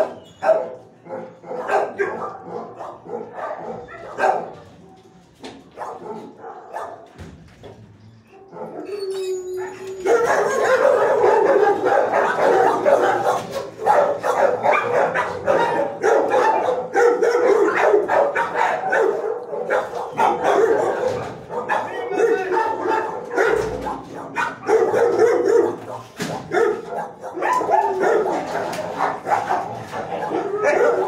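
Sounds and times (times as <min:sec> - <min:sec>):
dogs barking: 0:00.0 - 0:07.2, 0:08.2 - 0:31.0.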